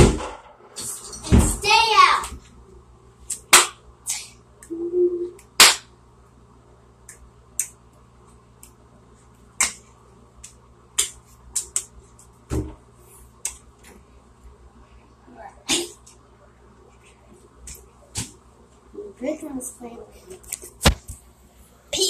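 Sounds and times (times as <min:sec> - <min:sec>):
hand claps and smacks: 0:03.3 - 0:04.2, 0:05.4 - 0:05.9, 0:07.0 - 0:07.8, 0:09.6 - 0:09.8, 0:10.4 - 0:12.3, 0:13.4 - 0:13.6.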